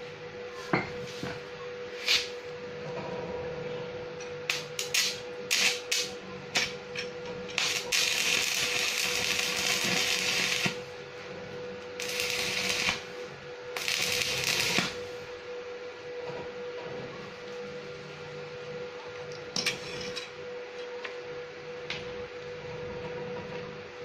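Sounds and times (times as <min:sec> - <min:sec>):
welding arc crackling: 0:04.5 - 0:06.8, 0:07.4 - 0:10.9, 0:11.9 - 0:15.1.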